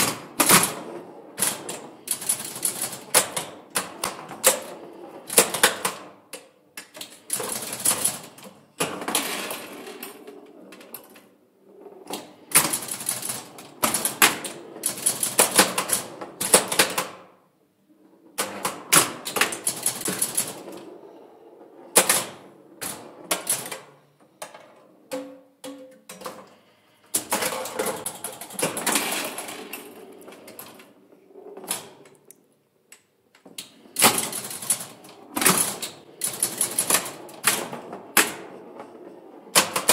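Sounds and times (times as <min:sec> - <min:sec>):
pinball machine clacking: 0:27.2 - 0:30.8, 0:33.6 - 0:38.4.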